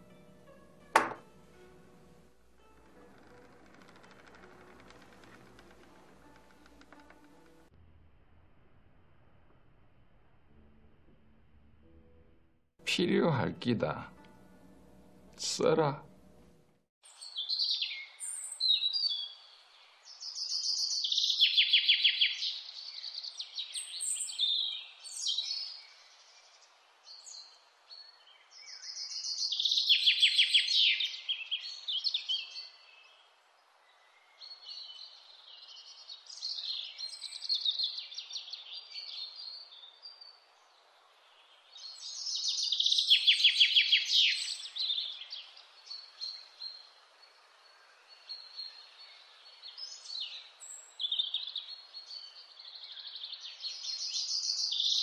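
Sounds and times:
songbird song with falling trill: 17.1 - 55.0
bird chirps: 41.8 - 55.0.

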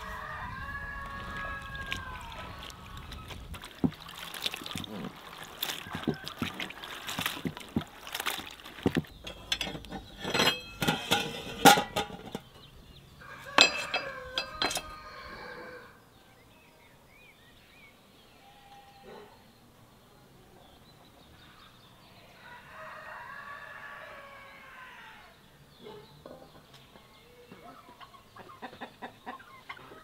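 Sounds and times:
water sloshing in basin: 1.1 - 12.7, 13.4 - 15.0
metal pot clinking on stove: 9.2 - 12.7, 13.5 - 15.0.

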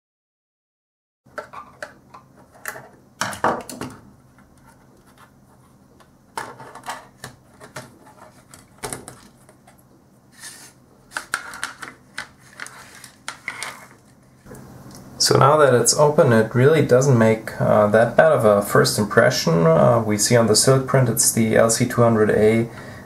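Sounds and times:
plastic parts knocking on wooden desk: 1.3 - 4.6, 11.1 - 13.8.

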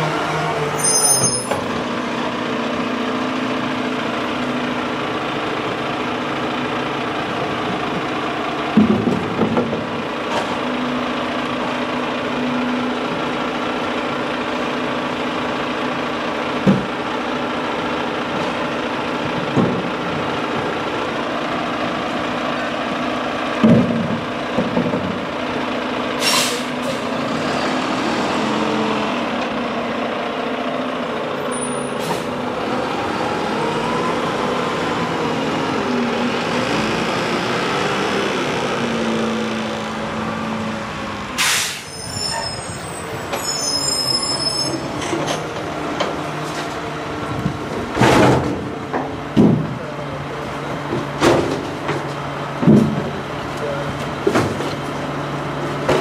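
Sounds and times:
truck engine idling: 1.6 - 56.0
air brakes hissing: 26.2 - 27.1, 31.6 - 32.4, 41.4 - 44.8.

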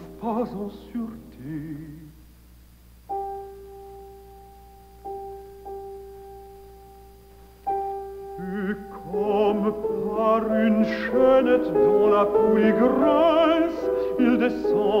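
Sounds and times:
baritone voice singing: 0.0 - 2.2, 8.4 - 15.0.

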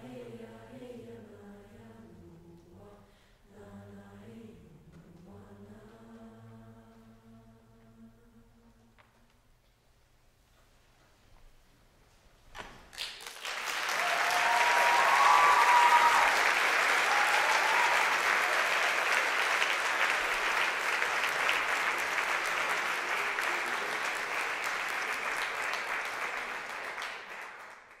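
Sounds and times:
audience applause: 12.9 - 28.0
audience cheering: 13.2 - 27.2.

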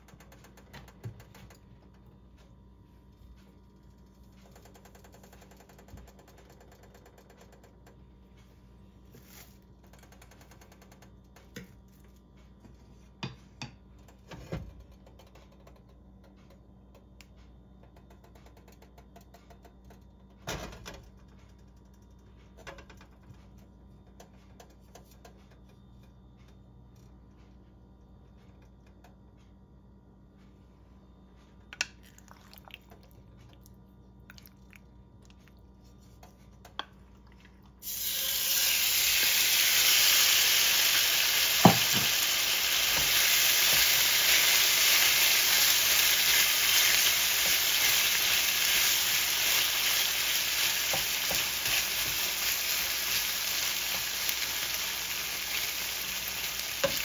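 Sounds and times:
oil ticking and crackling in pan: 37.8 - 57.0.

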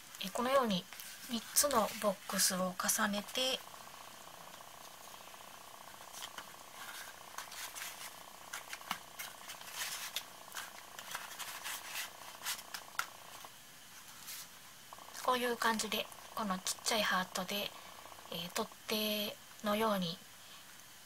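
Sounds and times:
steady background hum: 0.0 - 21.0
cardboard boxes rustling: 6.0 - 13.0.

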